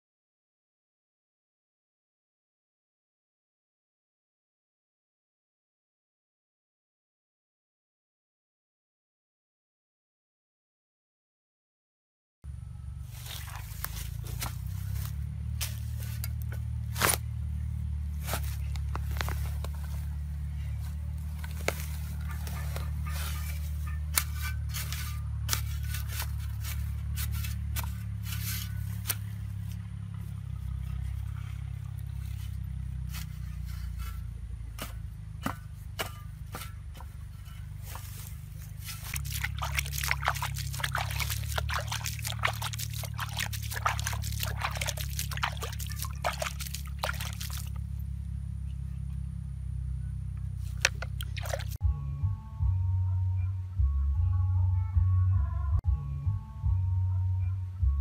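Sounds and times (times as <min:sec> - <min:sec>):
steady low rumble: 0:12.5 - 0:58.0
shovel scraping soil: 0:13.1 - 0:17.4, 0:18.2 - 0:20.1, 0:20.8 - 0:29.8, 0:30.8 - 0:47.8, 0:50.6 - 0:51.8
water poured onto soil: 0:13.2 - 0:16.3, 0:38.8 - 0:47.8, 0:50.7 - 0:51.8.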